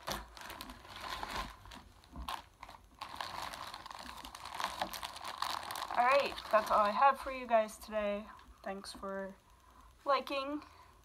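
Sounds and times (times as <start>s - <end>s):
plastic wrapping crinkling: 0.0s - 9.3s.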